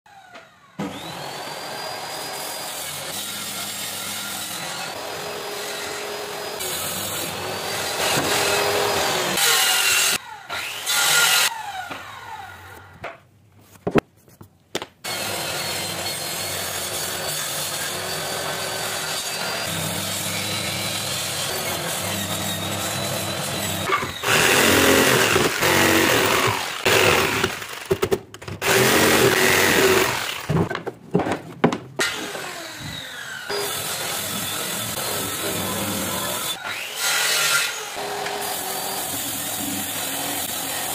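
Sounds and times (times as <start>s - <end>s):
jigsaw cutting plywood: 0.8s - 12.5s, 15.1s - 30.7s, 32.0s - 40.9s
circular saw whining: 32.1s - 37.0s.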